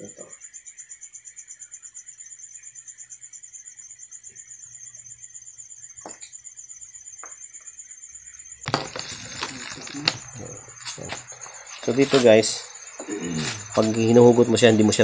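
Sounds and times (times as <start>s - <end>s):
crickets chirping: 0.0s - 15.0s
camera handling rustling and knocks: 8.7s - 10.2s.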